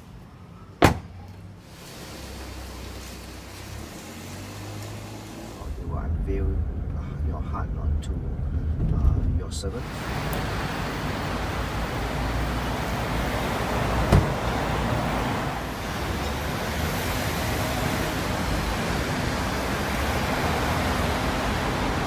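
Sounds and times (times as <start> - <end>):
traffic rumble: 0.0 - 22.0
car door shutting: 0.8 - 1.2, 14.0 - 14.6.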